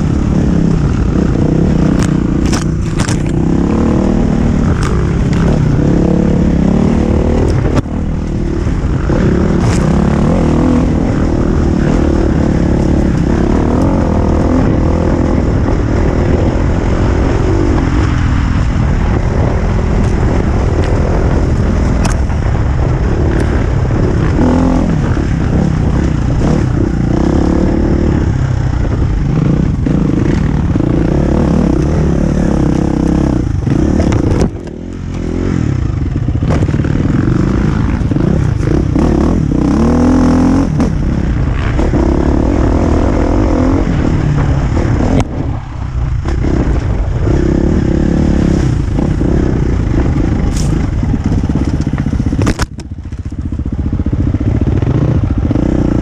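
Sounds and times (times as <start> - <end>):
motorcycle engine revving: 0.0 - 56.0
motorcycle knocking over rocks: 50.5 - 53.5.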